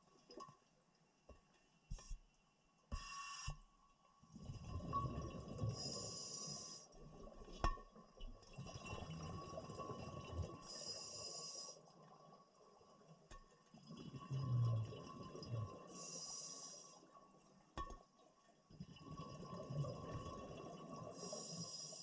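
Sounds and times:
scuba regulator hissing inhalations: 5.8 - 6.9, 15.9 - 17.0, 21.2 - 22.0.

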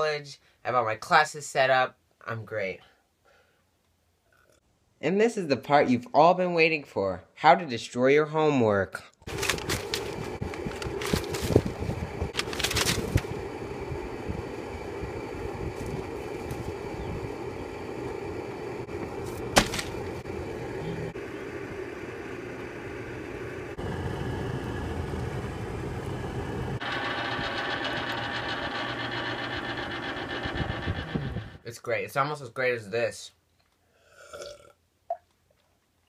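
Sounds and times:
outdoor background rumble: 9.3 - 31.7.

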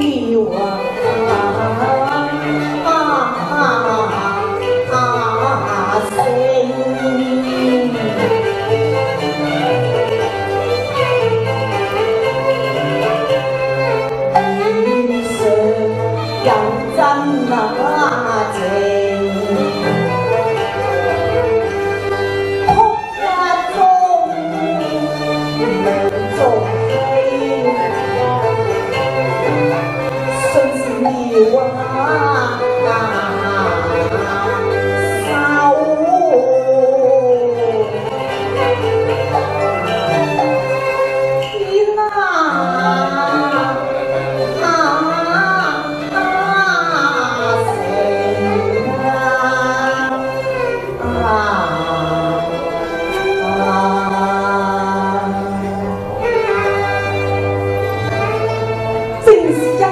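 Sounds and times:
woman singing into microphone: 0.0 - 8.4, 30.3 - 38.2, 41.6 - 56.1
recorded bowed string accompaniment: 0.0 - 59.9.

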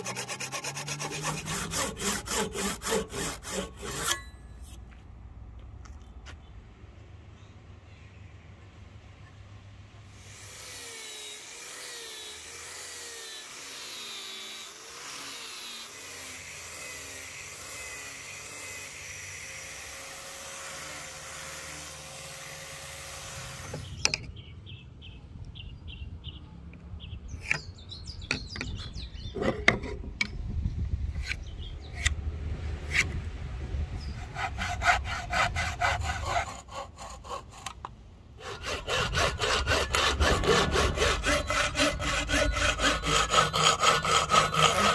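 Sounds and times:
angle grinder sanding wood: 0.0 - 4.2, 38.4 - 44.9
hand saw cutting wood: 0.0 - 4.8, 10.1 - 24.0, 32.9 - 33.2, 34.0 - 44.9.

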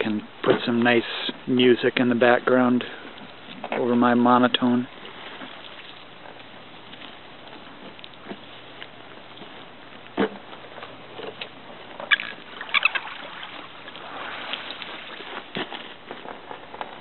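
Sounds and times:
shoreline water: 0.0 - 17.0.

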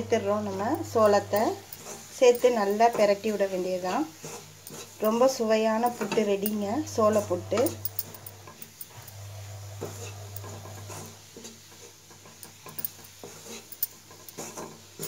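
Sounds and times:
low steady hum: 0.0 - 2.8, 6.3 - 11.0
wooden spatula scraping metal: 0.0 - 15.0.

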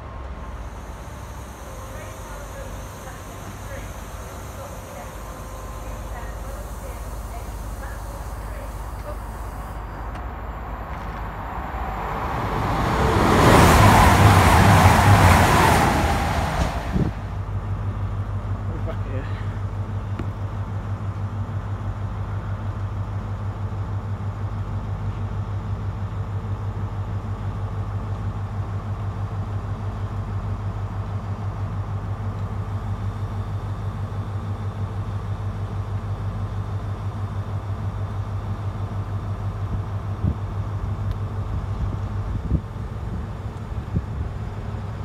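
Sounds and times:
diesel engine idling: 0.0 - 20.0.

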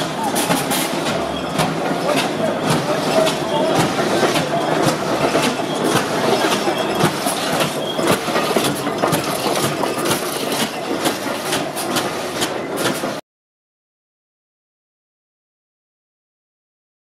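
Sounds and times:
clanks and knocks: 0.0 - 13.2
steam hiss and machinery: 0.0 - 13.2.

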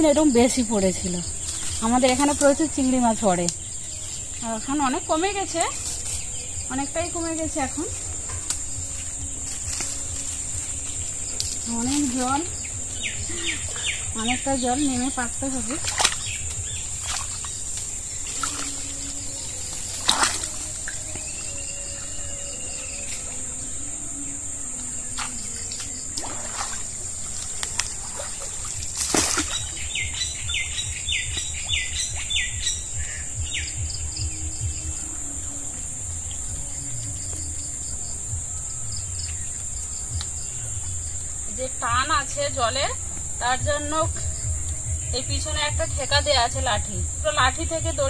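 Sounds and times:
water sloshing: 0.0 - 22.2, 25.2 - 32.3
birds calling: 0.0 - 24.3, 25.2 - 35.3
high insect drone: 0.0 - 48.0.

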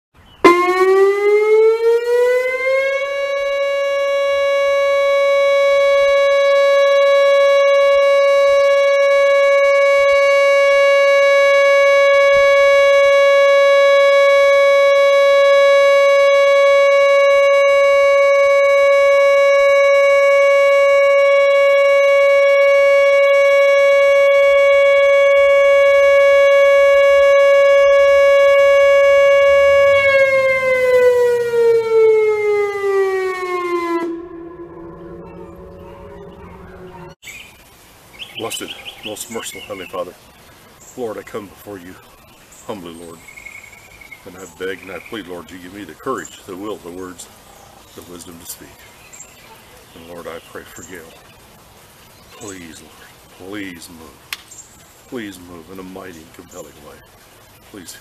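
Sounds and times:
warning siren winding up: 0.4 - 37.2.

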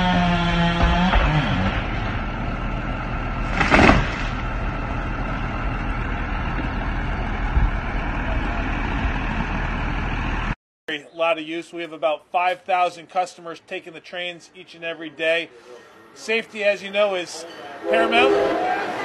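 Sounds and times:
vehicle rumbling: 0.0 - 10.6
short loud burst of noise: 3.5 - 4.5.

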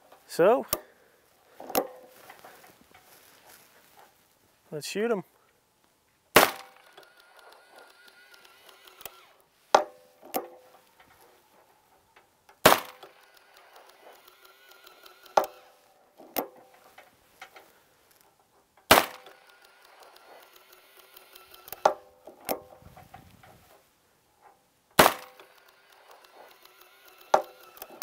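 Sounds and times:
hammer cocking clicks: 6.4 - 9.4, 12.6 - 15.7, 18.9 - 22.7, 25.0 - 28.0.

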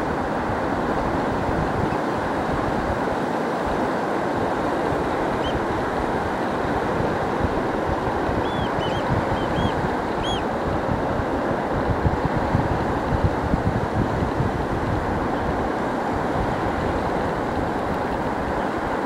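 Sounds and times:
surf: 0.0 - 19.0
wind: 0.0 - 19.0
high arched bird calls: 5.4 - 5.6, 8.4 - 10.4.

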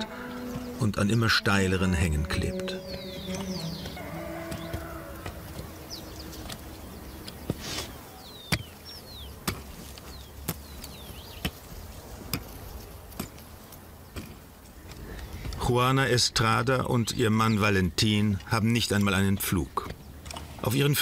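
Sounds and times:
hoe chopping dry soil: 2.9 - 16.6.

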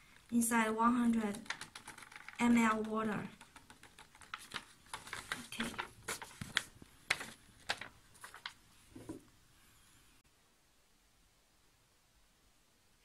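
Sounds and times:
paper sachet clicks and rustles: 1.0 - 9.1.

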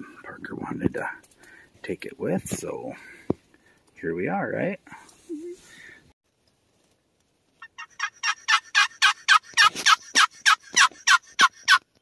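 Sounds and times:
turkey yelps: 7.6 - 11.8.

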